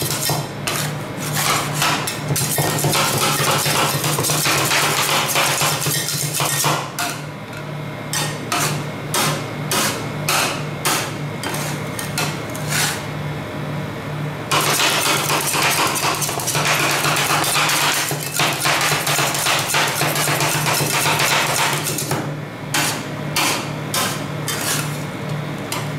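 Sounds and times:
metal spatulas chopping on steel plate: 0.0s - 13.0s, 14.5s - 25.0s
steady low hum: 21.4s - 25.9s.

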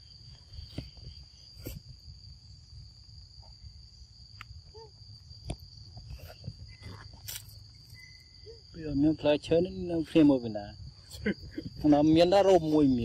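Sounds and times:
insects buzzing: 0.0s - 13.0s.

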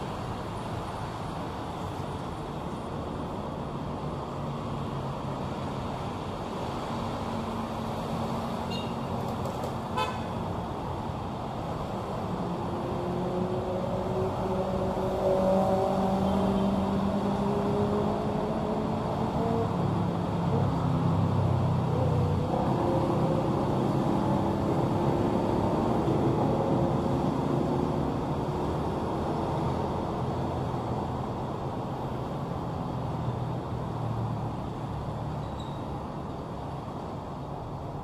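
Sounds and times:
street traffic passing: 0.0s - 38.0s.

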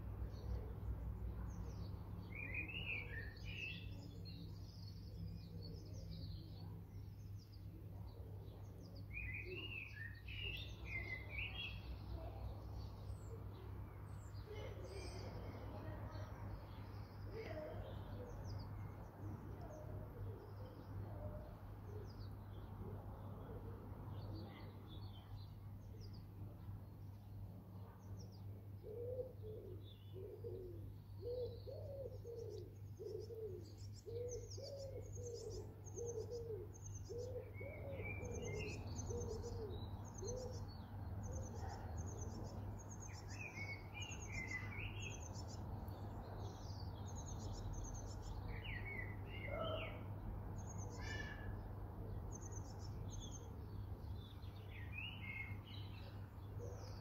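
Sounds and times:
low repeated cooing: 14.4s - 16.3s, 17.3s - 22.1s, 28.5s - 45.2s, 47.3s - 50.1s
birds chirping and trilling: 24.1s - 57.0s.

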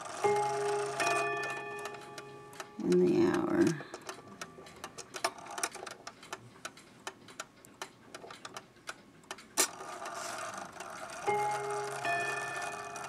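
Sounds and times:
loud clock click: 0.0s - 13.0s
mantel clock ticking: 0.0s - 13.0s.

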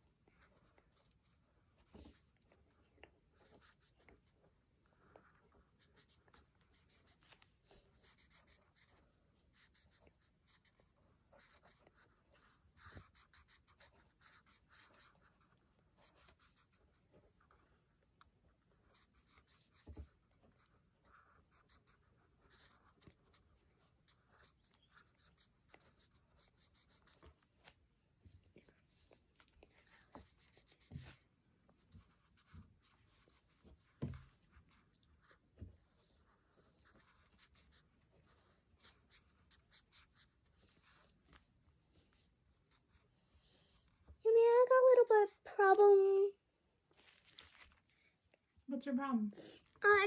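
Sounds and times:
marker scratching on card: 3.4s - 4.3s, 5.6s - 17.6s, 18.8s - 27.8s, 29.4s - 31.2s, 36.6s - 41.4s.

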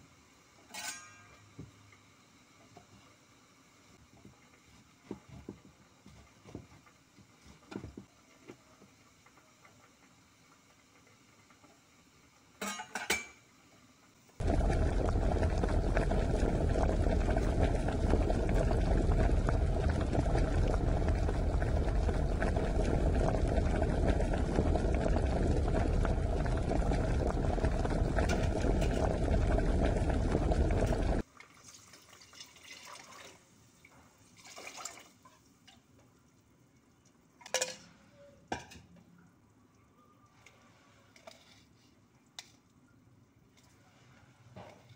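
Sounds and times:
liquid pouring into metal pot: 14.4s - 33.4s.

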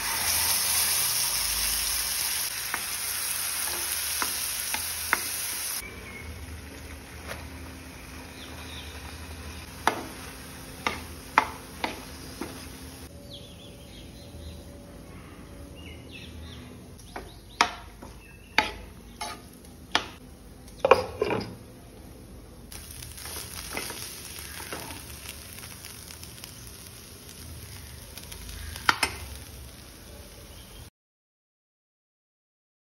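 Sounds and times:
beetroot sizzling in a frying pan: 0.0s - 13.1s, 22.7s - 30.9s.

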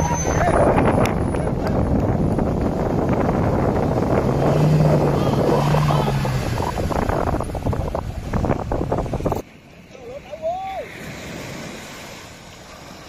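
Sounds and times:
wind buffeting microphone: 0.0s - 9.4s.

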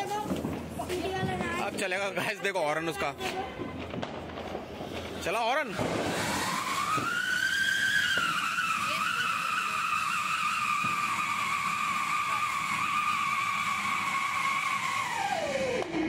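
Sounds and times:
firework spark spray hiss: 4.0s - 16.0s
firework shrill whistle: 4.8s - 16.0s.

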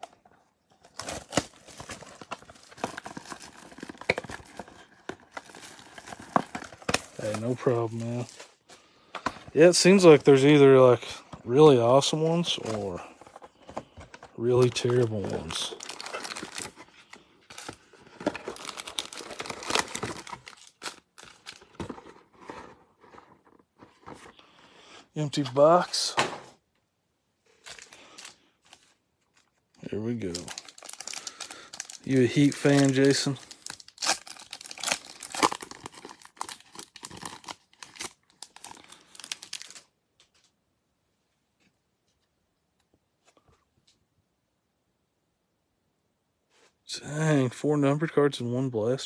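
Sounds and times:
plastic shrink wrap crinkling: 0.8s - 8.7s, 12.0s - 23.4s, 27.6s - 40.4s.

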